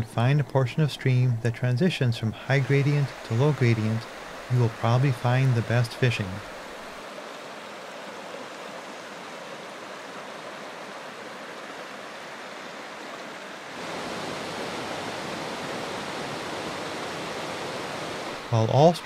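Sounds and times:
stream rushing over rocks: 2.3 - 19.0
waterfall cascading over rock: 2.4 - 18.9.

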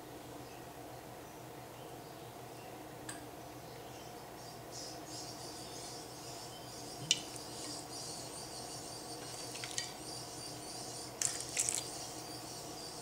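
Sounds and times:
wine pouring and splashing: 11.2 - 11.9
crackly spatters: 11.2 - 12.0.

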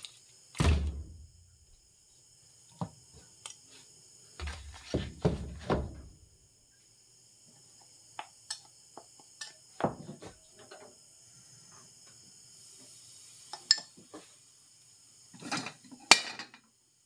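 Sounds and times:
heavy knocks on counter: 4.4 - 6.1
glass and spoon clinking: 13.6 - 13.9.

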